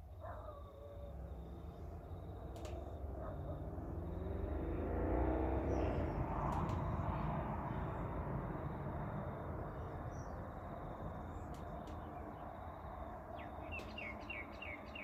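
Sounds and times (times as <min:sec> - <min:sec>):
passing vehicle rumble: 0:01.1 - 0:15.0
bird chirping: 0:09.7 - 0:15.0.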